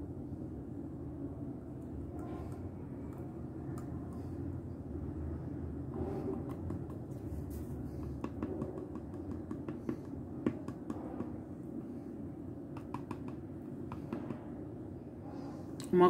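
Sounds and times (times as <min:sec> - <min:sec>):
steady low hum: 0:00.0 - 0:16.0
plastic bottle clicking and tapping: 0:08.0 - 0:11.4, 0:12.7 - 0:14.3.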